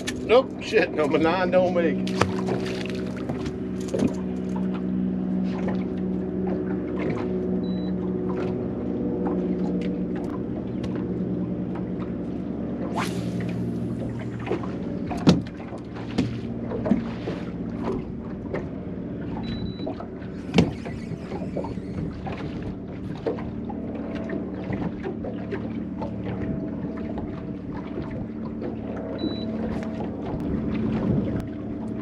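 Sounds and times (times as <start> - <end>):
low hum: 0.0 - 32.0
waves slapping against boat hull: 0.0 - 32.0.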